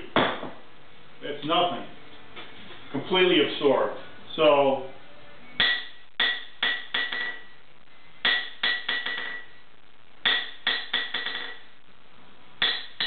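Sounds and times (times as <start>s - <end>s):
hammer striking anvil: 5.6s - 7.5s, 8.2s - 9.5s, 10.2s - 11.6s, 12.6s - 13.0s.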